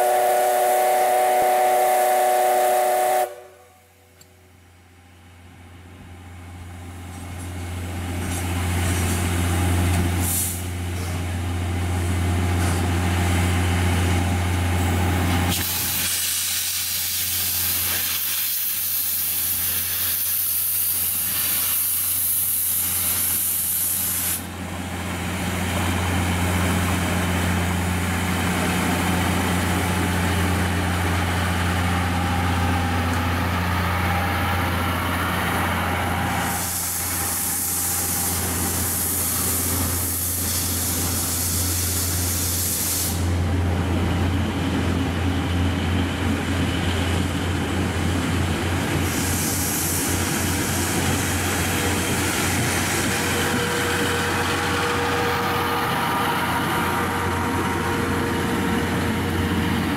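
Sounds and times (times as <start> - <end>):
loud steam blowing out: 0.0 - 3.6, 10.1 - 11.4, 14.7 - 44.1, 47.9 - 59.9
steam hissing: 10.2 - 11.2, 15.5 - 24.5, 33.5 - 43.6, 48.8 - 59.9.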